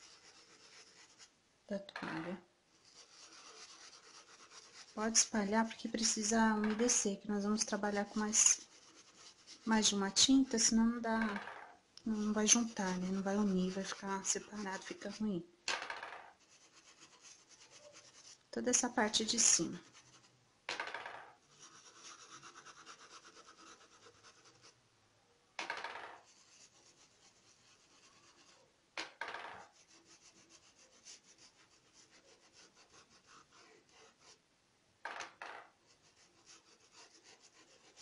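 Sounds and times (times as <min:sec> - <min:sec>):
paintbrush scrubbing across towel: 0:00.0 - 0:01.3, 0:02.2 - 0:11.1, 0:12.1 - 0:15.3, 0:16.3 - 0:20.4, 0:21.4 - 0:24.8, 0:26.2 - 0:28.7, 0:29.6 - 0:34.4, 0:35.8 - 0:38.0.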